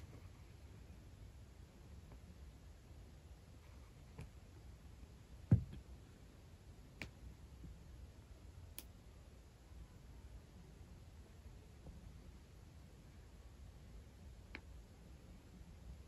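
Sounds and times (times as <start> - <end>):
soft thump: 5.5 - 5.8.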